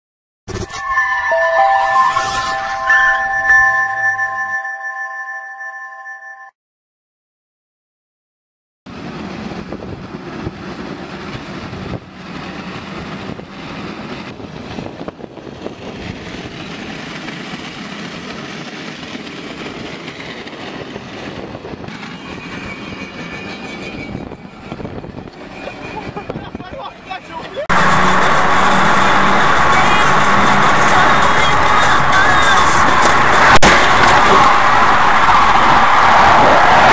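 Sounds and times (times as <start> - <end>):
thin squeal: 0.5 - 3.6.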